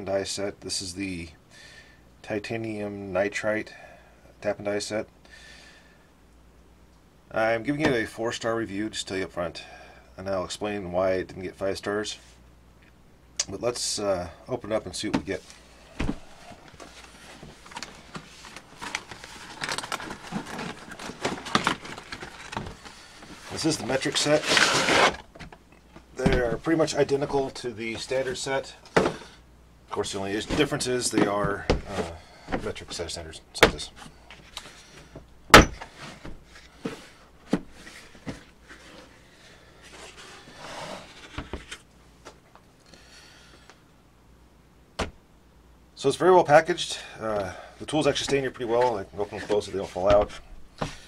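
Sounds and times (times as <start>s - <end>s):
packaging rustling and scraping: 15.3s - 25.5s, 35.8s - 39.2s, 39.8s - 41.9s
rubbing shuffle: 48.1s - 51.0s.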